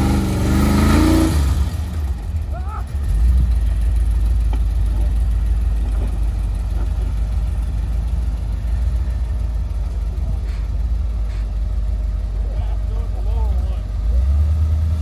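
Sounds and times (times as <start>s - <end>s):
truck engine low rumble: 0.0s - 15.0s.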